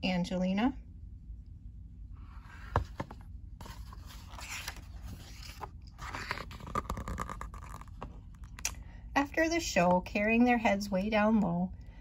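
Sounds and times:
paper rustling and sliding: 2.3s - 8.1s
book pages turning: 2.3s - 8.6s.

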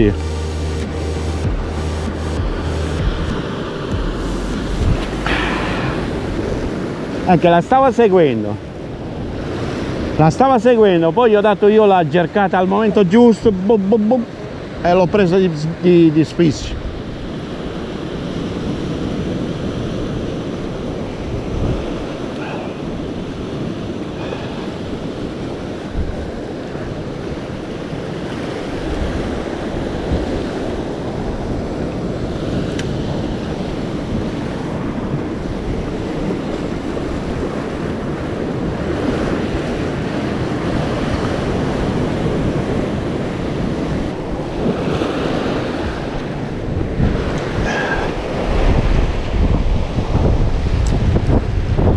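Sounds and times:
wind buffeting microphone: 2.4s - 11.5s, 16.7s - 51.9s
surf breaking over rocks: 4.8s - 16.2s.

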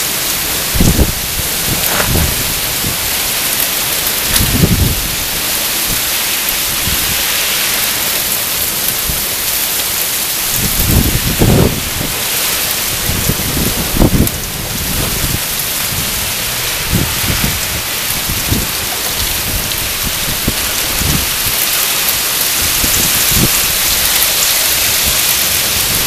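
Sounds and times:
heavy rain pouring: 0.0s - 26.0s
low thunder rumbles: 0.6s - 3.6s, 4.2s - 6.0s, 10.5s - 12.2s, 12.9s - 26.0s.

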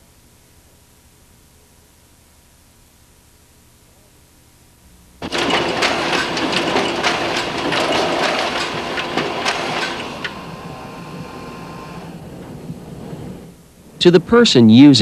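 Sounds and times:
photocopier clattering: 5.2s - 11.4s
photocopier hum: 5.2s - 15.0s.

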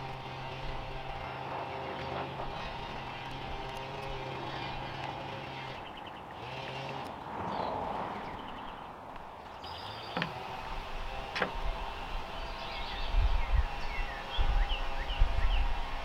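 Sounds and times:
birds chirping faintly: 0.0s - 16.0s
wind rumbling on microphone: 10.7s - 16.0s.

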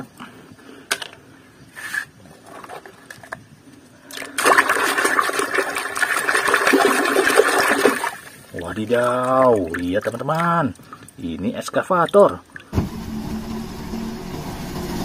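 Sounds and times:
water splashing in a basin: 4.0s - 12.8s.

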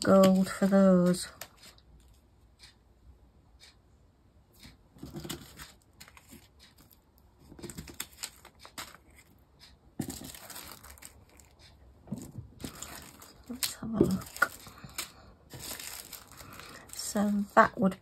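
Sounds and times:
plastic bags crinkling: 5.0s - 9.3s, 10.0s - 18.0s.

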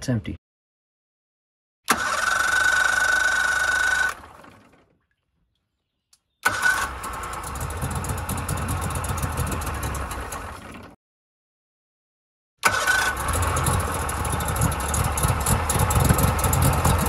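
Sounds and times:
electric starter cranking: 1.9s - 4.9s, 6.4s - 11.0s, 12.6s - 17.0s
outboard engine running: 1.9s - 5.0s, 6.4s - 11.0s, 12.6s - 17.0s.

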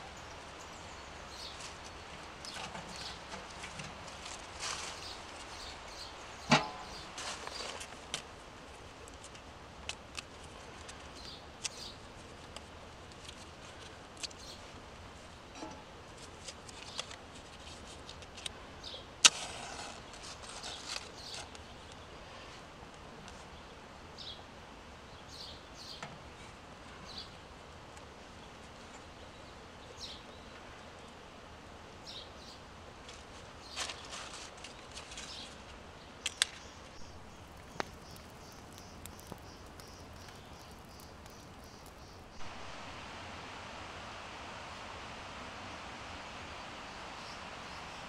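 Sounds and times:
hands clicking and tapping at stove: 37.2s - 42.3s.

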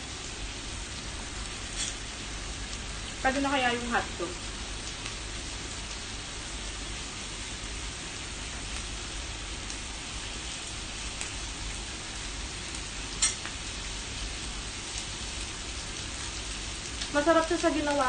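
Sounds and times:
meat sizzling on a grill plate: 0.5s - 18.0s.

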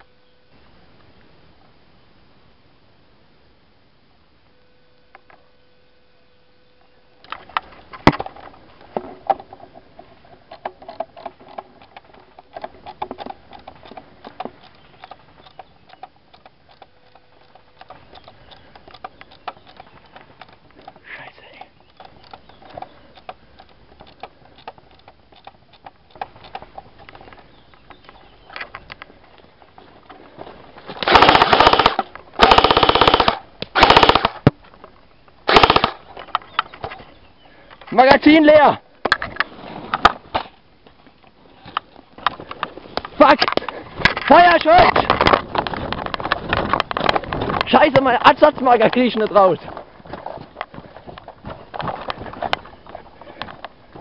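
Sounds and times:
footsteps through undergrowth: 26.2s - 31.0s, 39.4s - 54.0s
airsoft rifle full auto bursts: 31.0s - 34.5s, 35.5s - 36.1s.

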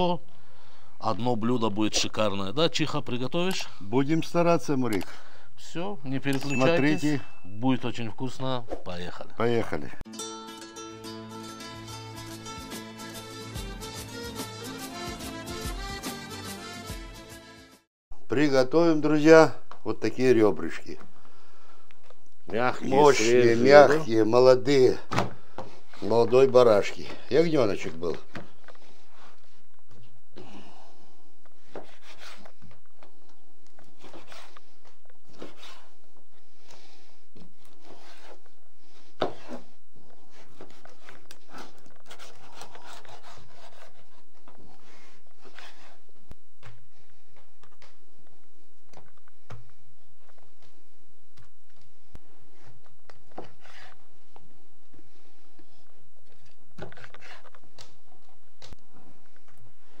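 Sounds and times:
knife scraping wooden board: 31.7s - 32.5s, 34.0s - 34.6s, 35.3s - 35.9s, 40.3s - 46.0s, 53.3s - 54.0s, 56.8s - 57.5s.

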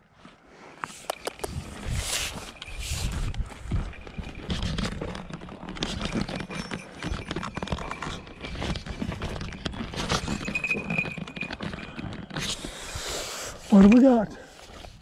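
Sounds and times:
footsteps crunching through dry brush: 0.1s - 5.2s
wind rumble on microphone: 1.4s - 6.4s.

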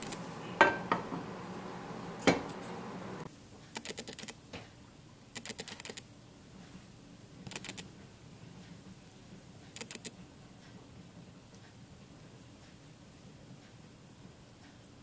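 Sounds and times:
spatula knocking frying pan: 0.6s - 1.3s.

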